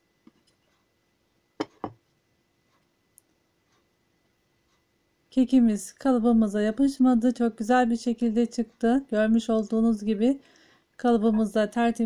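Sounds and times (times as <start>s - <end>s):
plate knocking on wooden board: 1.6s - 2.0s.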